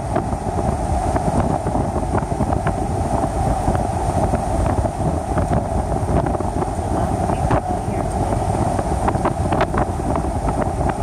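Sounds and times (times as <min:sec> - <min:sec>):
car road noise and wind rush: 0:00.0 - 0:11.0
wind buffeting microphone: 0:00.0 - 0:11.0.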